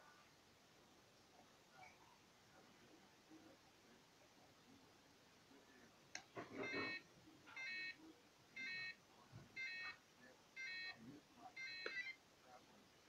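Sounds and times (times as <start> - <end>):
electronic beeper beeping: 6.6 - 7.0, 9.6 - 9.9, 11.6 - 12.1.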